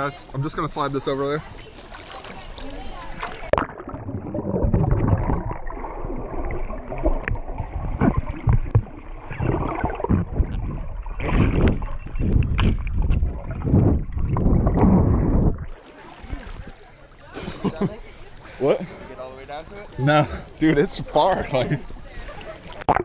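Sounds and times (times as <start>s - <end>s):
muffled water sloshing: 1.4s - 23.0s.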